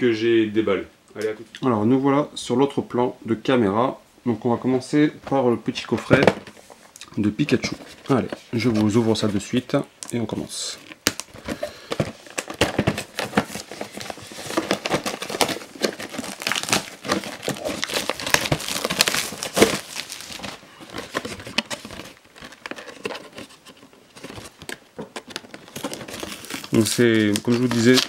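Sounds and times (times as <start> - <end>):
plastic wrap crinkling: 5.8 - 28.0.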